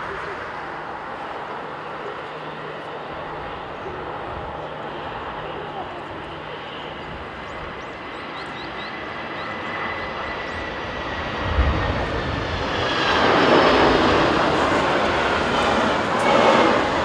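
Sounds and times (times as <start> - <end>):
jet engines rumbling: 0.0 - 17.0.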